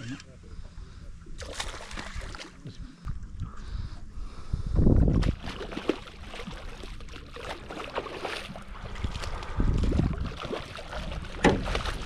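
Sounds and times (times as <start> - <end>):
water sloshing: 1.3 - 3.4, 5.1 - 12.0
low rumble: 8.5 - 12.0
clicks and knocks in boat: 9.8 - 12.0.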